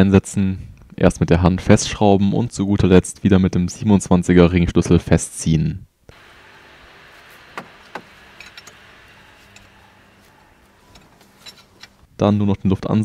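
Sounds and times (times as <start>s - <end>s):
steady faint hiss: 0.0s - 13.0s.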